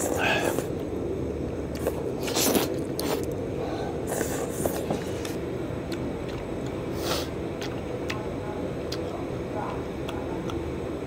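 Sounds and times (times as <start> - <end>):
slurping noodles: 1.8 - 3.3.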